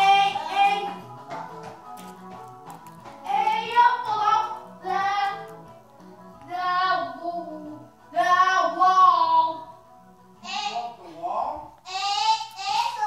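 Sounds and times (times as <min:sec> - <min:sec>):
child singing: 0:00.0 - 0:01.0, 0:03.3 - 0:05.5, 0:06.4 - 0:09.7, 0:11.8 - 0:13.0
faint music: 0:00.0 - 0:13.0.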